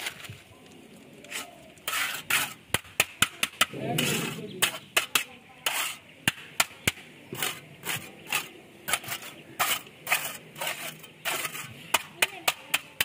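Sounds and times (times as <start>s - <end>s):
trowel scraping wet concrete: 1.2s - 13.0s.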